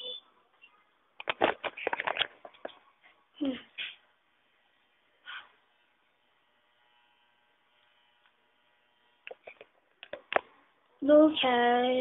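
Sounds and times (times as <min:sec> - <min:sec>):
faint electrical hum: 0:00.0 - 0:12.0
sharp clicks and knocks: 0:01.2 - 0:02.8.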